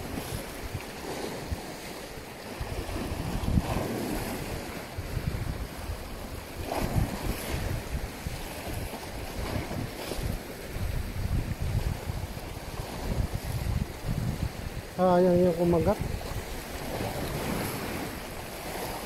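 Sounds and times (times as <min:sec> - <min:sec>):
sea wash: 0:00.0 - 0:19.0
wind buffeting microphone: 0:00.0 - 0:19.0.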